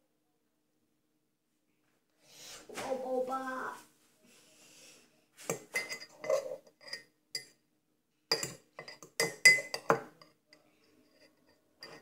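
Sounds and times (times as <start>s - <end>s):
fork clinking in ceramic mug: 5.5s - 7.6s, 8.3s - 10.4s, 11.1s - 12.0s.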